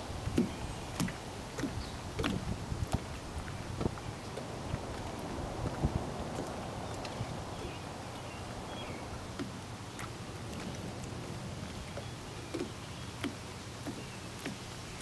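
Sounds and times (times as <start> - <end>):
outdoor background hiss: 0.0 - 15.0
soft ticks: 11.9 - 14.6.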